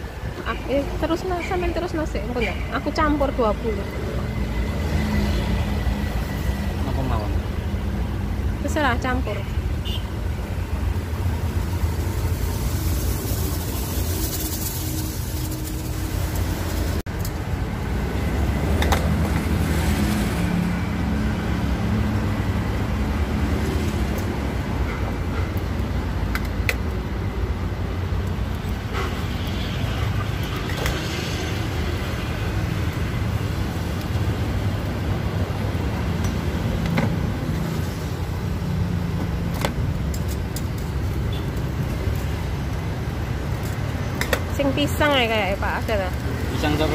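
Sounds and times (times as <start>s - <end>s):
road traffic rumble: 0.0s - 46.9s.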